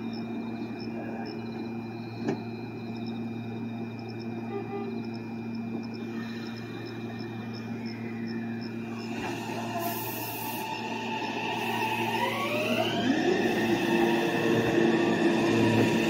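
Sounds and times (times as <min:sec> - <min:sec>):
electrical hum: 0:00.0 - 0:16.0
rising motor whine: 0:01.4 - 0:16.0
train rushing: 0:04.9 - 0:16.0.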